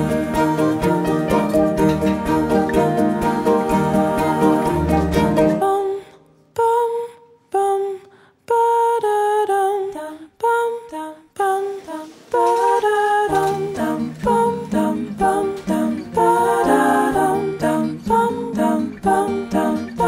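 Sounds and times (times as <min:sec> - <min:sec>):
lower sustained vocal part: 0:00.0 - 0:07.1, 0:12.4 - 0:20.0
a cappella vocal melody: 0:00.0 - 0:20.0.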